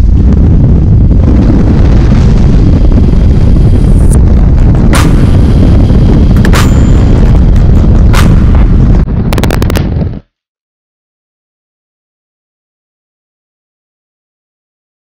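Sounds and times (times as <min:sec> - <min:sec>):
wind buffeting microphone: 0:00.0 - 0:10.3.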